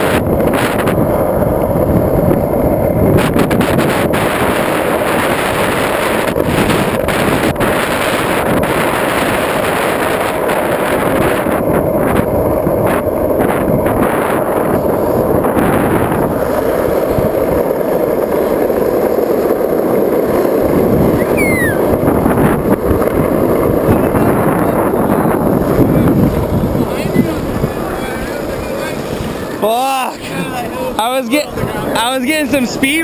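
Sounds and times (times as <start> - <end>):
skateboard wheels rolling on asphalt: 0.0 - 33.0
wind buffeting microphone: 0.0 - 33.0
brief falling squeal: 21.2 - 21.8.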